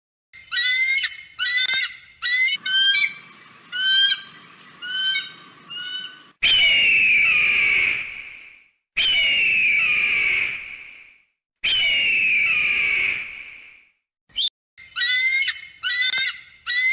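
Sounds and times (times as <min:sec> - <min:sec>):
eagle shrill calls: 0:00.4 - 0:08.0, 0:09.0 - 0:10.6, 0:11.6 - 0:13.2, 0:14.4 - 0:16.9
eagle long scream: 0:02.3 - 0:08.3, 0:09.0 - 0:10.9, 0:11.6 - 0:13.4.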